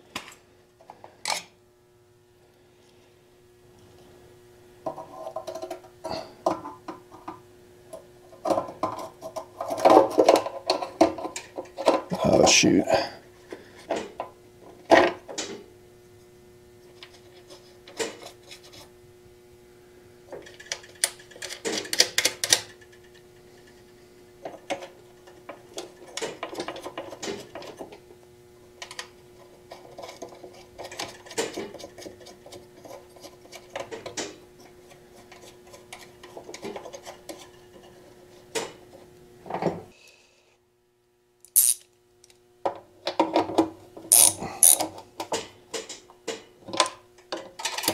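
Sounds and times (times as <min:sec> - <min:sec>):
faint steady hum: 0:00.0 - 0:47.9
metal parts clicking and rubbing: 0:41.5 - 0:41.9, 0:44.1 - 0:44.9.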